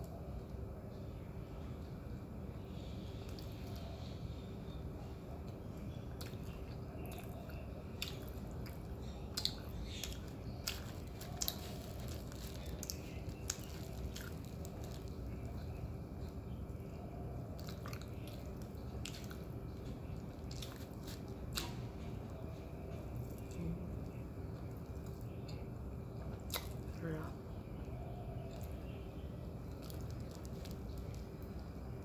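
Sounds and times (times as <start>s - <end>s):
open-mouth chewing: 5.4s - 25.6s, 26.2s - 27.0s, 29.7s - 31.6s.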